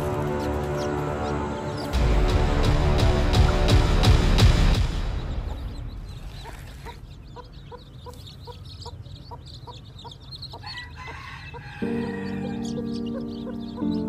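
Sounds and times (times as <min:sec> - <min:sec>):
chicks peeping: 0:00.0 - 0:02.0, 0:05.1 - 0:14.0
music: 0:00.0 - 0:06.2, 0:11.6 - 0:14.0
hen clucking: 0:06.1 - 0:14.0.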